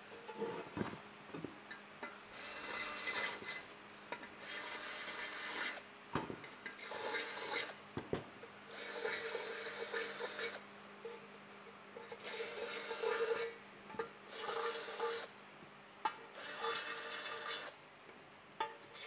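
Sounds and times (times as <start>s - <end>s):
electric drill spinning: 2.4s - 3.5s, 4.4s - 5.8s, 6.9s - 7.7s, 8.7s - 10.6s, 16.4s - 17.7s.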